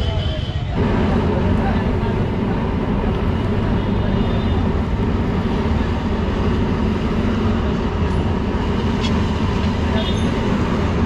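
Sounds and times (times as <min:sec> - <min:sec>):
street traffic engine rumble: 0:00.0 - 0:11.0.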